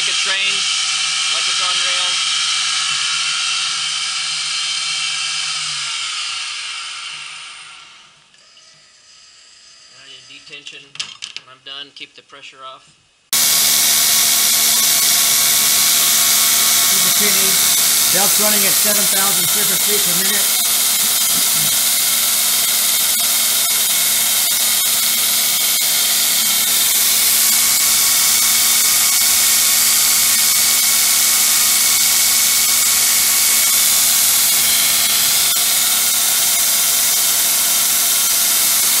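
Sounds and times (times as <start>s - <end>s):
belt grinder running: 0.0s - 8.0s, 13.3s - 39.0s
motor hum and whine: 13.4s - 39.0s.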